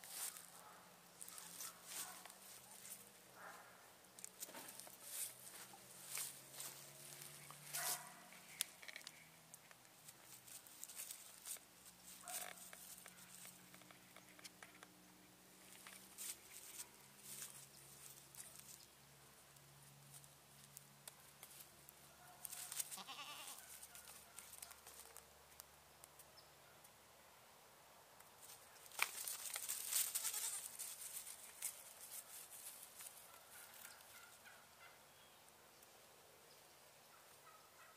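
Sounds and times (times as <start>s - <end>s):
hooves stepping on grass and leaves: 0.0s - 3.6s, 4.2s - 14.8s, 15.4s - 25.6s, 28.4s - 34.4s
goats calling: 22.5s - 24.0s.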